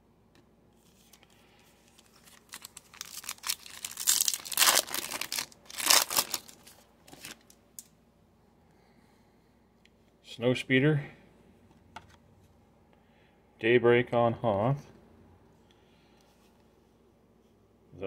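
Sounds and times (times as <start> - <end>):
foil wrapper crinkling and tearing: 1.8 - 7.9.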